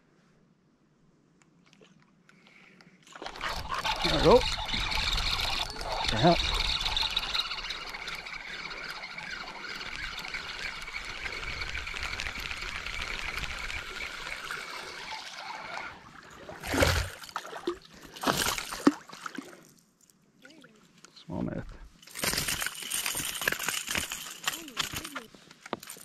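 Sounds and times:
lure splashing across water: 3.0 - 20.1.

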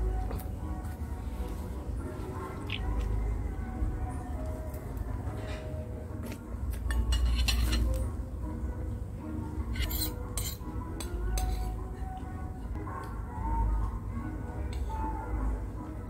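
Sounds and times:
faint music: 0.0 - 16.0
metal spoon clinking against bowl: 6.9 - 8.0, 9.8 - 11.7.

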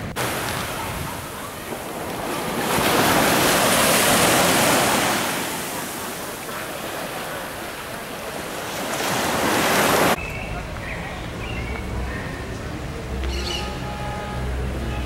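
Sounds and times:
surf washing up beach: 0.0 - 10.2.

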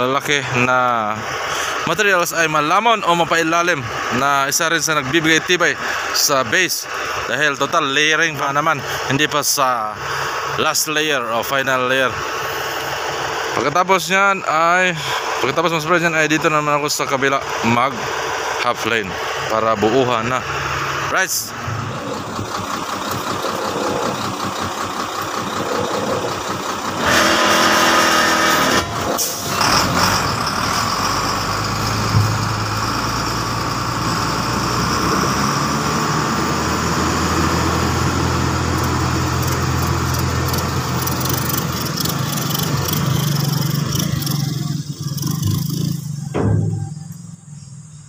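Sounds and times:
vehicle engine running: 0.0 - 48.0.

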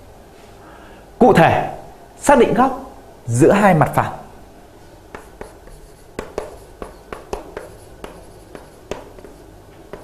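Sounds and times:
pen taps and scrapes: 5.1 - 10.0.

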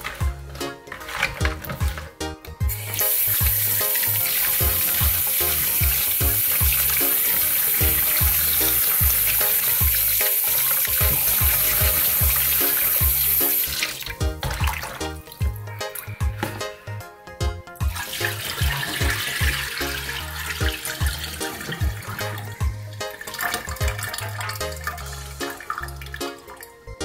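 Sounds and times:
tap water splashing into basin: 7.7 - 15.0.

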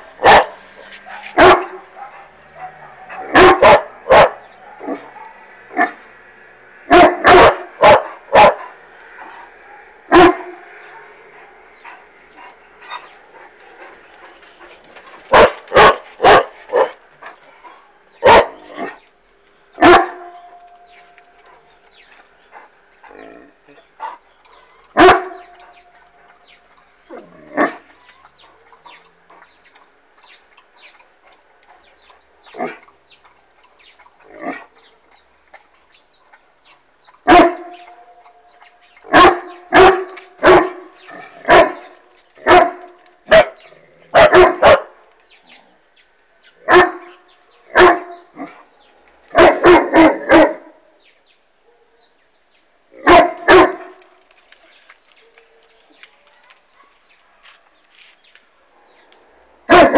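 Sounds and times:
dog barking: 0.2 - 6.0, 6.9 - 8.7, 9.6 - 11.2, 15.3 - 17.0, 18.2 - 18.7, 19.8 - 20.5, 24.5 - 25.7, 37.3 - 37.9, 39.1 - 45.0, 46.7 - 48.7, 49.3 - 50.8, 51.6 - 52.0, 53.0 - 54.0, 59.7 - 59.9.

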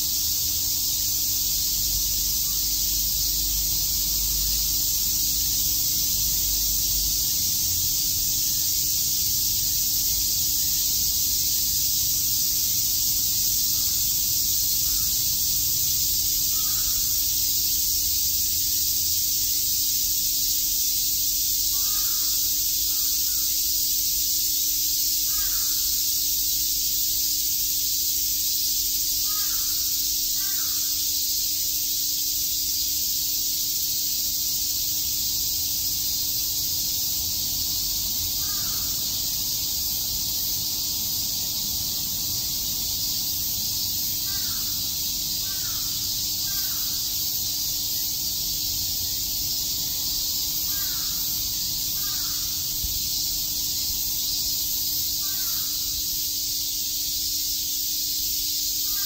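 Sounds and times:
cicadas chirping: 0.0 - 59.0.

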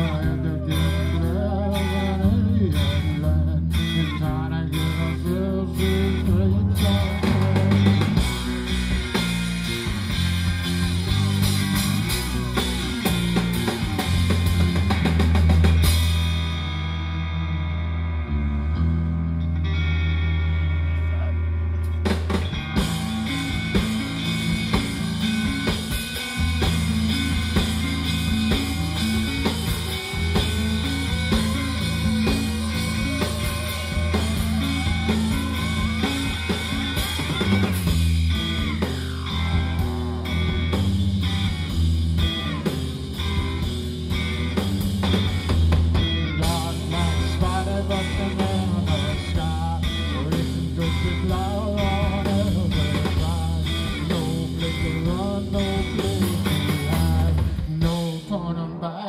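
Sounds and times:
drum kit beat: 0.0 - 16.8, 21.8 - 58.2
bass guitar: 0.0 - 59.0
electric guitar: 0.0 - 59.0
sliding falling tone: 21.9 - 41.8.

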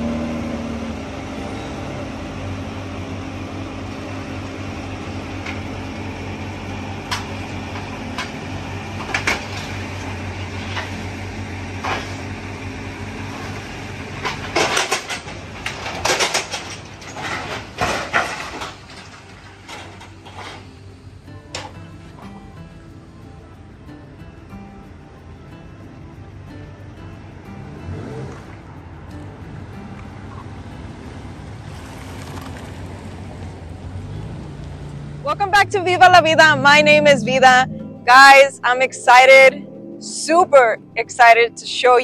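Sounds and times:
engine hum: 0.0 - 42.0
metal knocks and clanks: 7.1 - 9.9, 14.2 - 20.7.

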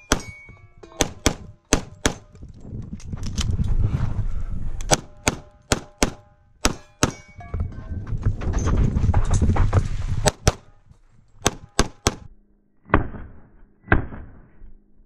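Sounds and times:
pistol shots: 0.0 - 0.4, 1.0 - 2.4, 4.9 - 7.3, 10.2 - 10.7, 11.4 - 12.3
rumble and clatter: 2.0 - 5.3, 7.3 - 11.6.

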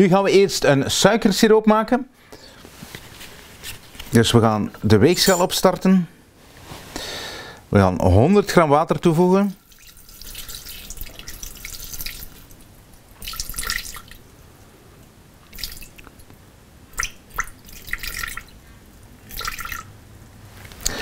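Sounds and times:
water pouring into metal bowl: 9.5 - 14.2, 17.0 - 18.6, 19.2 - 19.9.

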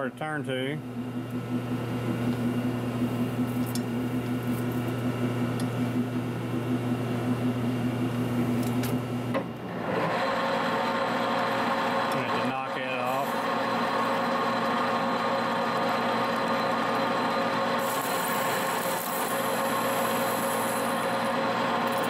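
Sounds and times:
lathe motor humming: 0.8 - 22.0
chuck spinning gear whir: 13.3 - 22.0.

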